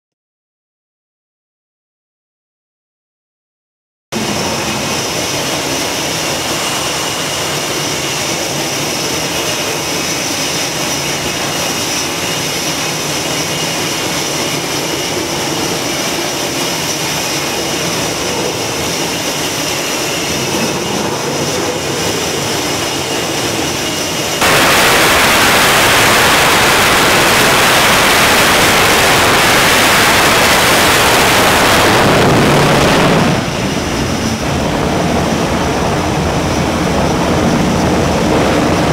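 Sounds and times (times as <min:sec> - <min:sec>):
jet engine full power roar: 0:04.1 - 0:38.9
jet engines whining: 0:04.1 - 0:38.9.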